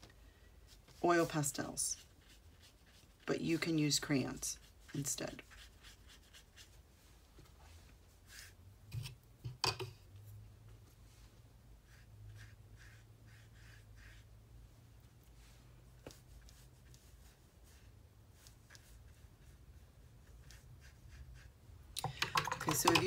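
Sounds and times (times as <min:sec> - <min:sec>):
brush strokes on paper: 0:00.6 - 0:08.7, 0:10.2 - 0:21.6
brush clicking against water jar: 0:22.0 - 0:23.0.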